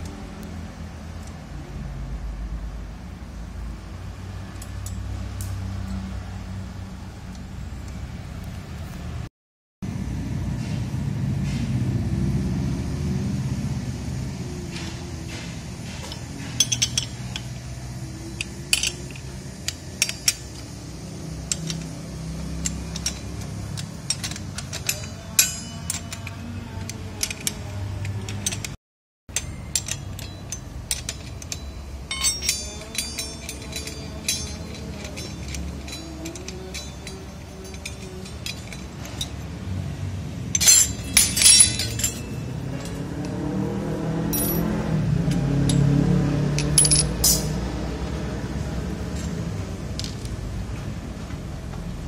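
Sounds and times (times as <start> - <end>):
metal blade clinks and rattles: 16.0 - 39.6, 40.4 - 43.3, 44.3 - 47.6.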